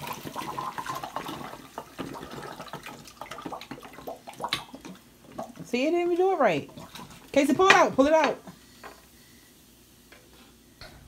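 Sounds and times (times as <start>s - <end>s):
liquid pouring through funnel: 0.0s - 5.7s.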